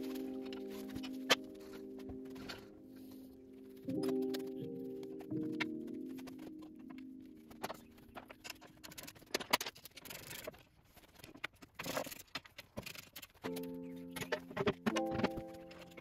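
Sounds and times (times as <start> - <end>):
background music: 0.0 - 9.2, 13.4 - 16.0.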